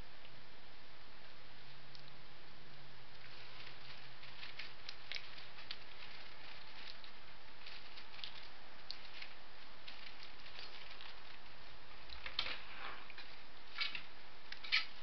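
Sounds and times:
faint low hum: 0:00.0 - 0:15.0
steady hiss: 0:00.0 - 0:15.0
faint ticks and rustles: 0:03.1 - 0:15.0.

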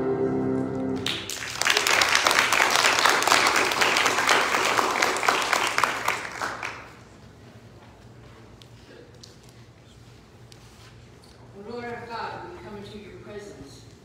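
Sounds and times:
grand piano chord ringing: 0:00.0 - 0:01.1
applause: 0:01.0 - 0:07.0.

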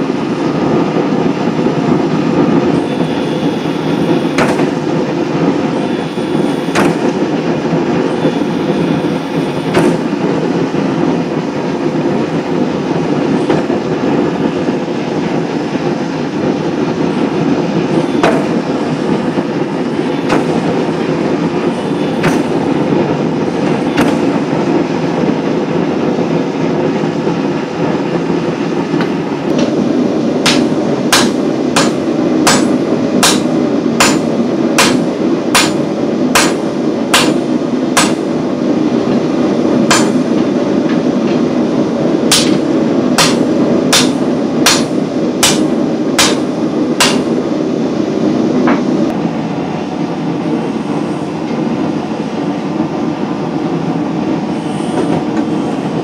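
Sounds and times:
machine drone: 0:00.0 - 0:56.0
hammer striking steel on anvil: 0:06.7 - 0:07.1, 0:18.2 - 0:18.6, 0:20.2 - 0:20.6, 0:22.2 - 0:22.6, 0:30.4 - 0:38.3, 0:39.9 - 0:40.2, 0:42.3 - 0:47.4.

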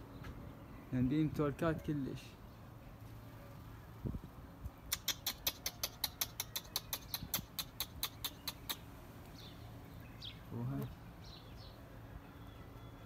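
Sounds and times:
rapid sharp clicks: 0:05.0 - 0:08.8.

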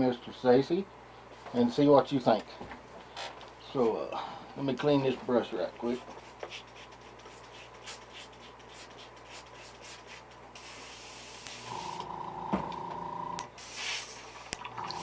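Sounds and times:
steady hum: 0:00.0 - 0:15.0
airbrush hissing spray: 0:09.3 - 0:11.9, 0:13.6 - 0:14.5.

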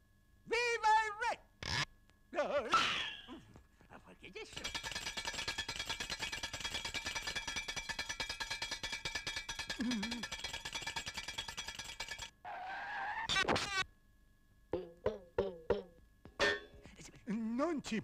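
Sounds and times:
fast cartoon clatter: 0:04.4 - 0:12.3.

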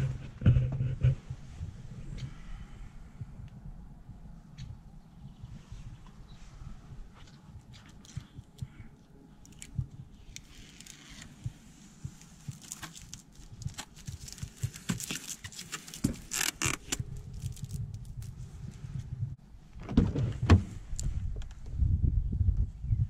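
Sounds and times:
plastic film crackling: 0:12.4 - 0:18.3.

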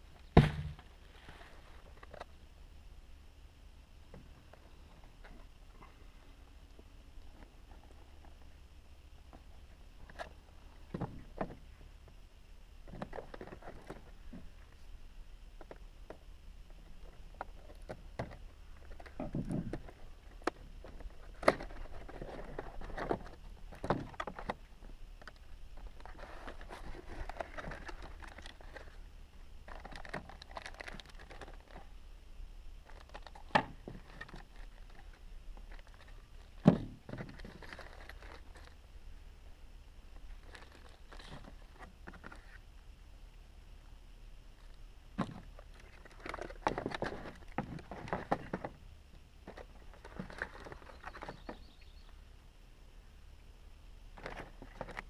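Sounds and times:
sharp knock: 0:00.4 - 0:00.8
plastic bags rustling: 0:29.7 - 0:31.8, 0:37.2 - 0:38.8, 0:40.4 - 0:41.6.

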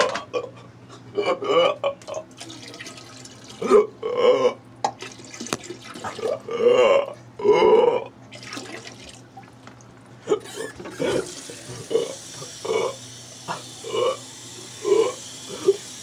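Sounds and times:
person retching and vomiting: 0:01.2 - 0:02.6, 0:03.5 - 0:04.6, 0:05.6 - 0:08.2, 0:10.2 - 0:15.9.

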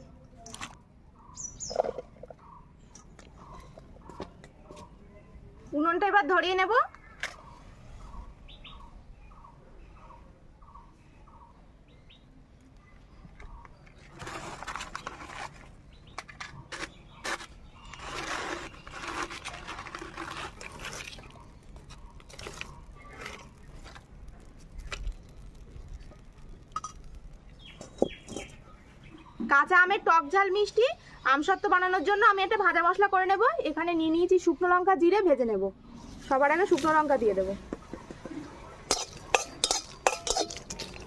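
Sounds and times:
dry twigs and paper crackling: 0:12.5 - 0:28.7.

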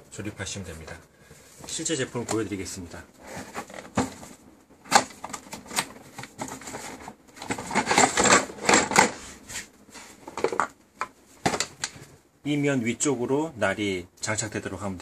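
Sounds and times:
cardboard scraping: 0:03.2 - 0:04.3
plastic parts clattering: 0:03.2 - 0:09.2, 0:10.2 - 0:12.0
cardboard flaps rustling: 0:03.2 - 0:10.6.

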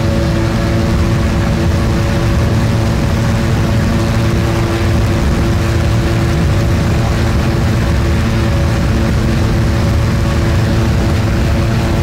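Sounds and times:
ultralight aircraft engine drone: 0:00.0 - 0:12.0.

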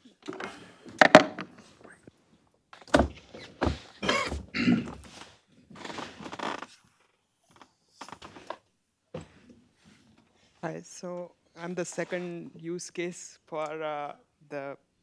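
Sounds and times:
microphone handling thumps and rustling: 0:02.8 - 0:06.4.

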